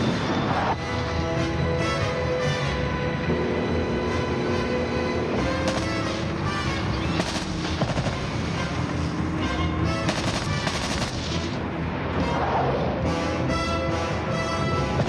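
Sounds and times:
dramatic film score: 0.0s - 15.0s
automatic rifle fire: 5.6s - 6.3s, 7.1s - 8.3s, 10.1s - 11.6s.

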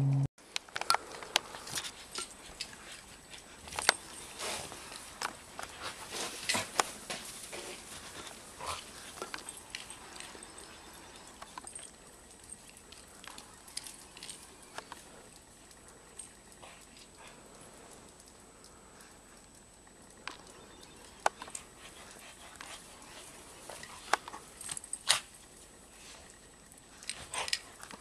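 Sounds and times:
dogs scuffling in snow: 1.6s - 11.4s.

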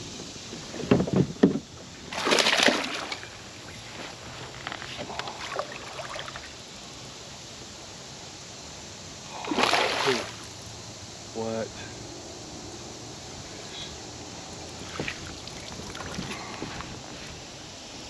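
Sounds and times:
water splashing: 2.1s - 3.5s, 9.3s - 10.5s, 14.8s - 16.6s.

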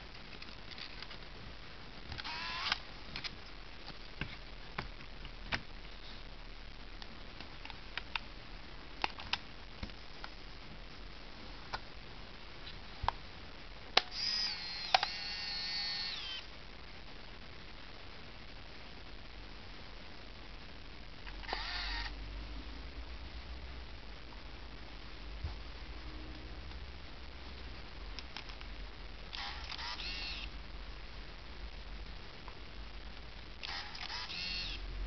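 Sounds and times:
film-advance motor whining: 2.2s - 2.8s, 14.1s - 16.4s, 21.4s - 22.1s, 29.4s - 30.5s, 33.6s - 34.8s
small camera clicks: 2.2s - 2.8s, 14.0s - 16.4s, 21.4s - 22.1s, 29.3s - 30.5s, 33.6s - 34.8s.

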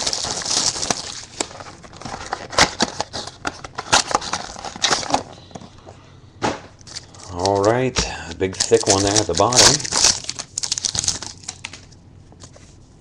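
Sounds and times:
wrapper crackling: 0.0s - 5.2s, 6.8s - 12.0s.

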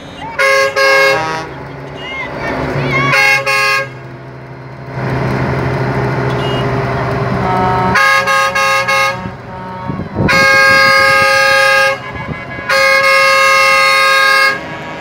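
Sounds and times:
truck air horn blasts: 0.0s - 2.1s, 2.9s - 4.0s, 6.3s - 15.0s
diesel engine droning: 0.0s - 15.0s.

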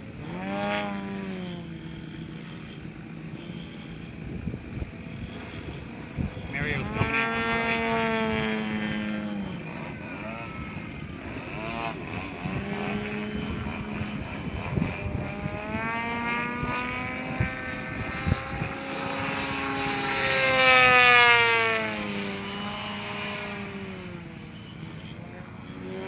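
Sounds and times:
model plane engine: 0.0s - 26.0s.

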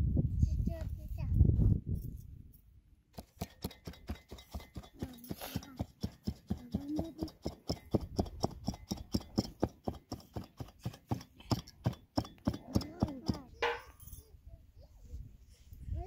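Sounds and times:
metal beater knocking on loom: 5.8s - 14.0s.

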